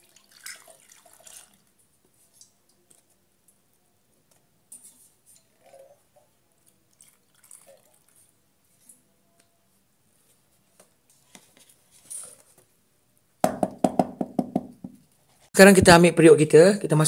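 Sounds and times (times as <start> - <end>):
hollow knocking on bamboo tubes: 13.4 - 15.0.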